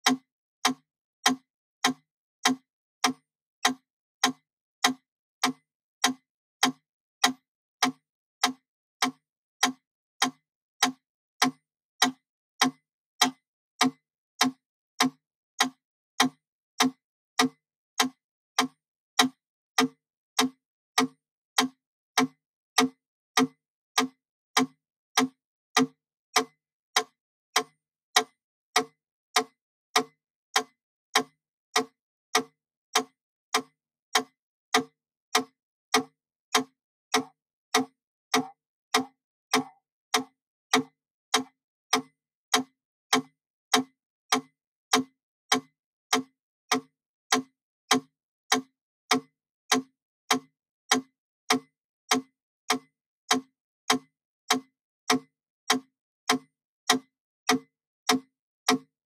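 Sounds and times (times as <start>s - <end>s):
metronome ticking: 35.4s - 43.2s.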